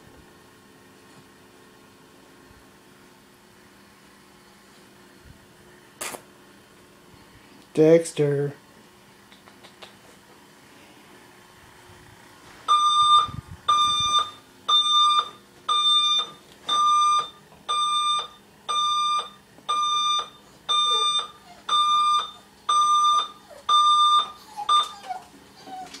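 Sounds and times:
digital alarm clock beeping: 12.7 - 24.9.

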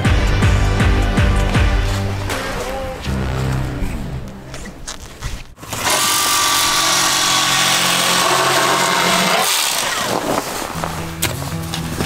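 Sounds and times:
electric knife buzzing: 5.6 - 10.2.

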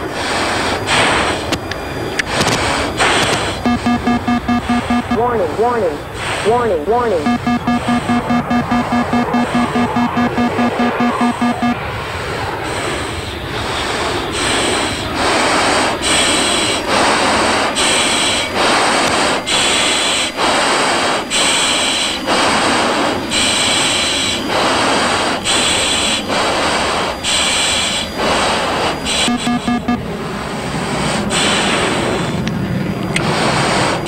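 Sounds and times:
heavy breathing in oxygen mask: 0.0 - 1.5.

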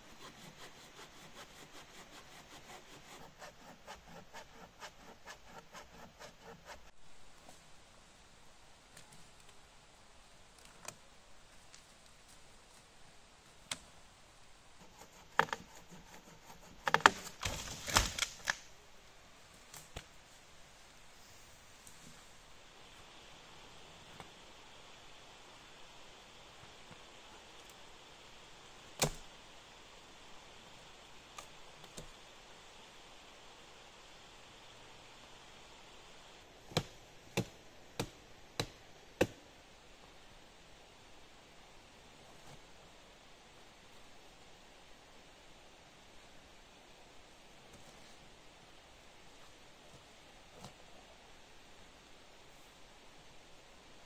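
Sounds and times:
dry wood snapping: 16.8 - 18.7
hatchet chopping branch: 36.7 - 39.4.

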